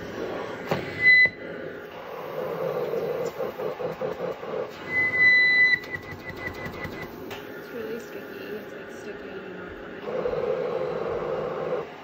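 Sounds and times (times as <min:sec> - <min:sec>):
machine pushing and pulling air: 0:00.0 - 0:07.4.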